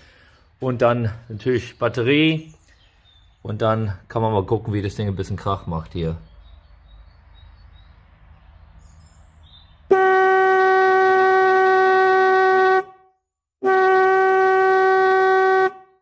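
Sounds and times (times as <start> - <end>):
electric horn honking: 9.9 - 16.0.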